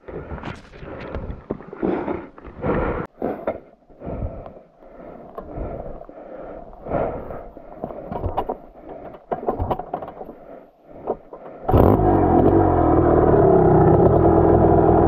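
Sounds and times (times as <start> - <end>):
dirt bike engine revving: 11.7 - 15.0.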